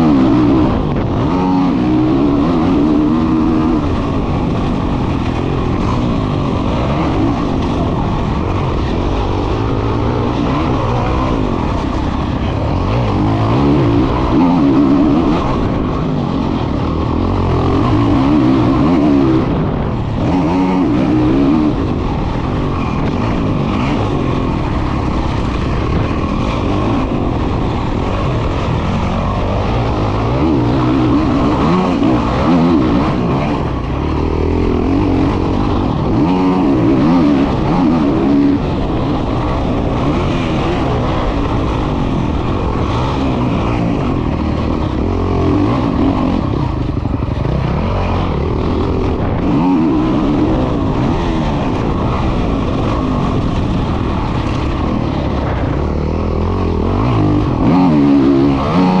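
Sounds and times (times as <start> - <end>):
motocross bike engine revving: 0.0 - 59.0.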